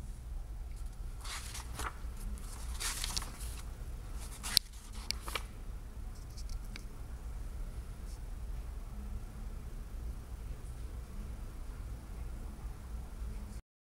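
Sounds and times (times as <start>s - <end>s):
book pages turning: 0.8s - 5.5s.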